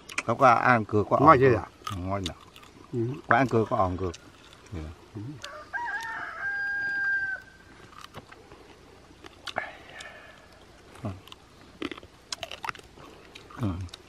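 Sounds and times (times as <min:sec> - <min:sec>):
rooster crowing: 0:05.4 - 0:07.8.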